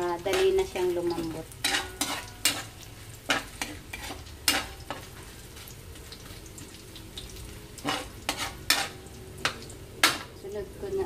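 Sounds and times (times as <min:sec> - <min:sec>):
low sizzle: 0:00.0 - 0:11.0
spatula scraping a metal wok: 0:00.2 - 0:05.4, 0:07.8 - 0:10.3.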